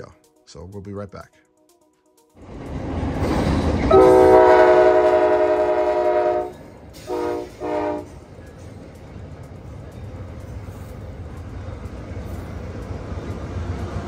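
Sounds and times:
train horn blasts: 0:03.7 - 0:08.2.

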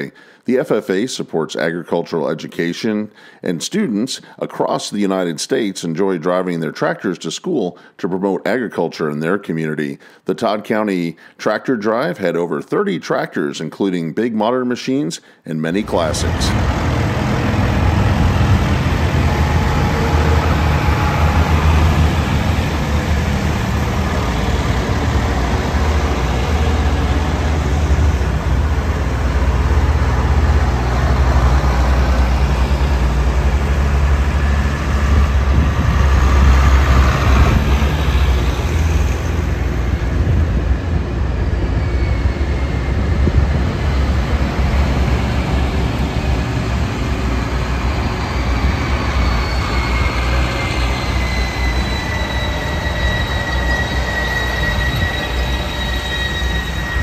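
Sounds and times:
tractor engines rumbling: 0:15.7 - 0:57.0.

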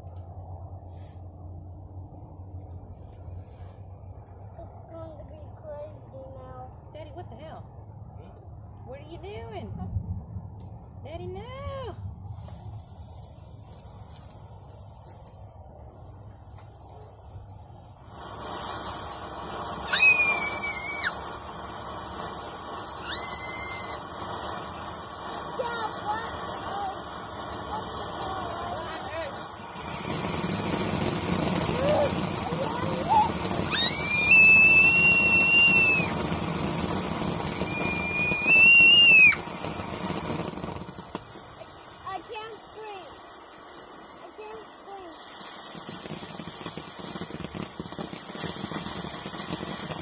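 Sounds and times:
firework fountain hissing: 0:00.0 - 0:50.0
loud high whistle: 0:19.8 - 0:21.2, 0:22.9 - 0:24.1, 0:32.9 - 0:36.3, 0:37.4 - 0:39.5.

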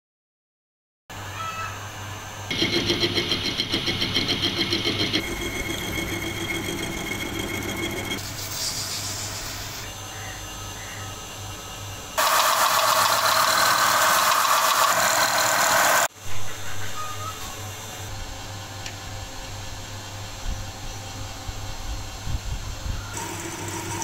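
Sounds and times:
loud steady machining noise: 0:02.0 - 0:16.1, 0:23.1 - 0:24.0
metal lathe running: 0:02.5 - 0:09.9, 0:12.2 - 0:16.1, 0:23.2 - 0:24.0.

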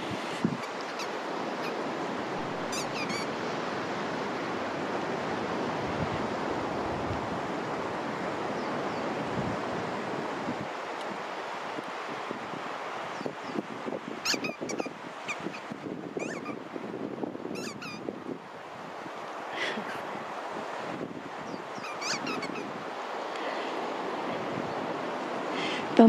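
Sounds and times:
sea surf on a beach: 0:00.0 - 0:26.0
short high squeaks: 0:00.6 - 0:01.8, 0:02.4 - 0:03.3, 0:14.2 - 0:16.6, 0:17.5 - 0:18.0, 0:21.8 - 0:22.7.

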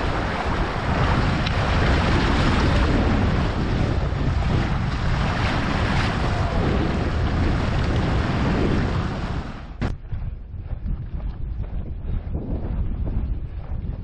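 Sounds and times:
water rushing and splashing: 0:00.0 - 0:09.9
wind buffeting microphone: 0:00.0 - 0:14.0.

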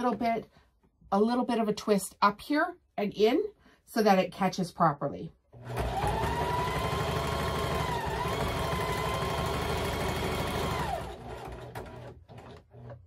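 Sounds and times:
sewing machine motor whine: 0:05.6 - 0:13.0.

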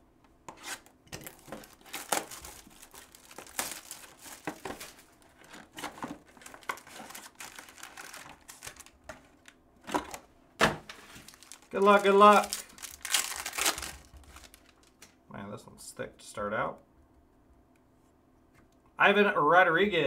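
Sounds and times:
plastic wrap tearing and crinkling: 0:00.6 - 0:10.2, 0:11.0 - 0:15.1.

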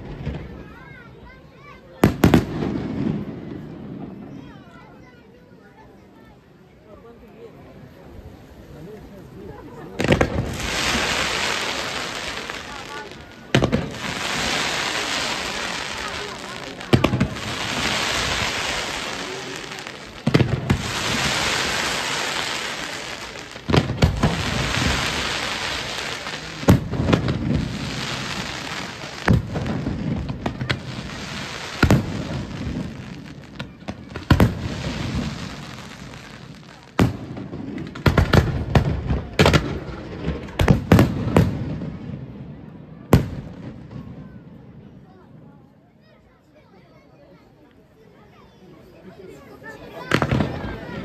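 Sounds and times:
fireworks bangs: 0:00.0 - 0:04.8, 0:09.6 - 0:45.0, 0:49.3 - 0:51.0
fireworks hissing rush: 0:01.8 - 0:04.5, 0:07.8 - 0:42.2, 0:48.8 - 0:51.0.

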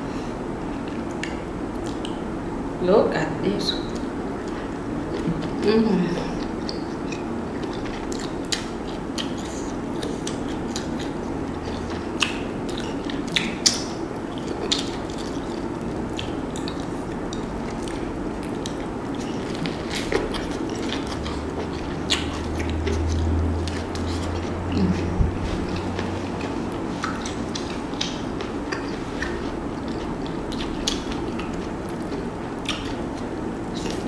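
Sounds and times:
low hum: 0:00.0 - 0:34.0
chewing and lip smacks: 0:00.8 - 0:02.3, 0:03.9 - 0:34.0
sharp wet clicks: 0:06.6 - 0:24.1.

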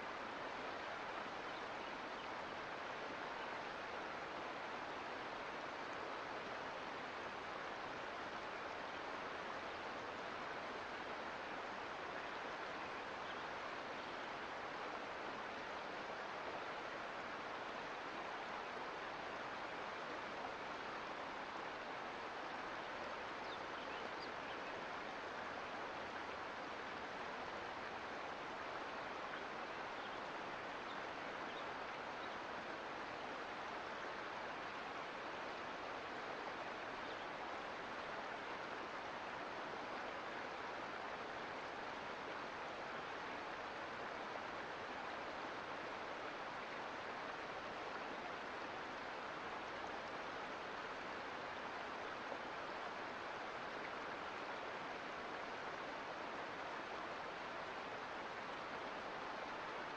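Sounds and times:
creek water rushing: 0:00.0 - 0:59.9.

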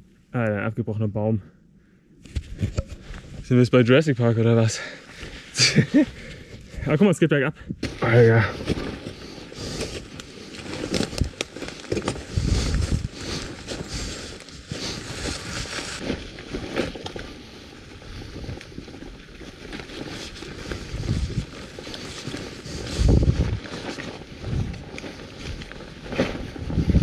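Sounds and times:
bicycle rattling over stones: 0:07.9 - 0:27.0.

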